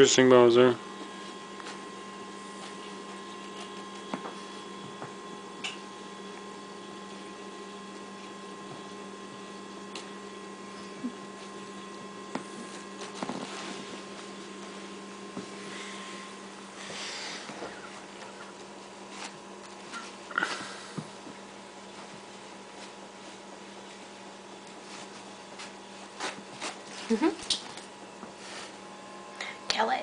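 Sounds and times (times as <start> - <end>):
electrical hum: 0.0 - 30.0.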